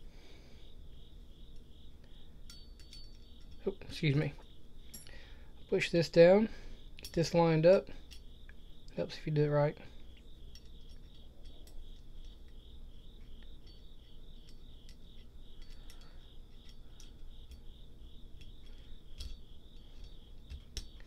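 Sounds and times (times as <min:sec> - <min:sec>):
insect chirping: 0:00.0 - 0:21.0
metal pistol parts clicking: 0:02.4 - 0:03.6, 0:07.0 - 0:08.4, 0:10.1 - 0:21.0.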